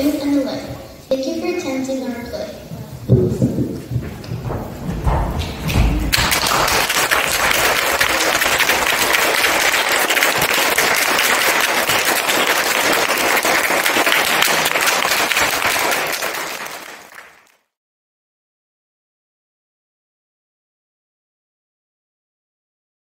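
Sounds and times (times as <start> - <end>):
audience clapping: 3.4 - 17.7.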